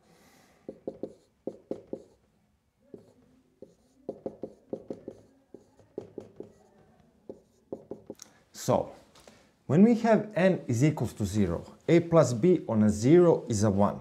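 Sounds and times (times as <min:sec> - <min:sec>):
marker writing on whiteboard: 0:00.7 - 0:02.2, 0:02.9 - 0:08.2.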